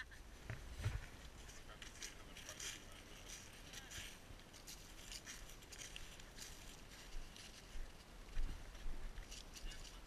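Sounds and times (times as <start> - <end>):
footsteps crunching dry leaves: 0.2 - 10.0.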